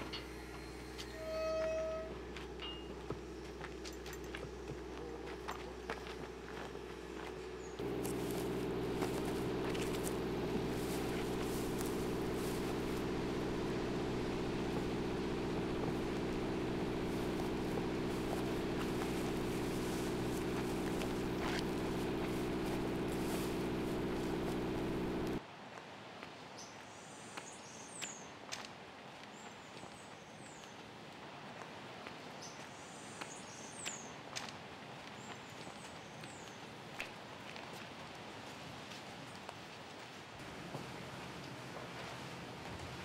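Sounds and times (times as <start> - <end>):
generator engine humming: 0.0 - 25.4.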